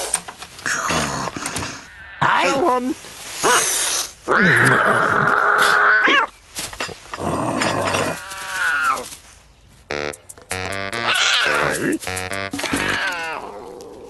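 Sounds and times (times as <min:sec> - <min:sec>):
strained cartoon vocal cries: 0:09.9 - 0:13.9.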